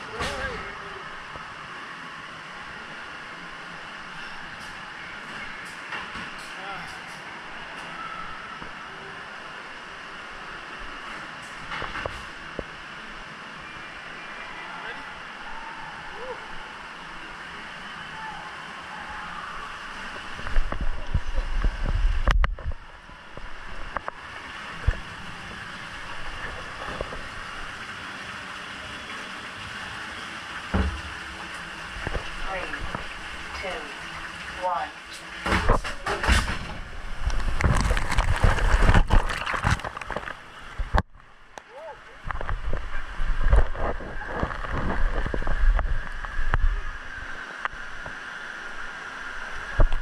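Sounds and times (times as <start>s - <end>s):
running water: 0.0s - 50.0s
wind noise on microphone: 20.3s - 24.1s, 35.6s - 41.2s, 42.2s - 47.3s.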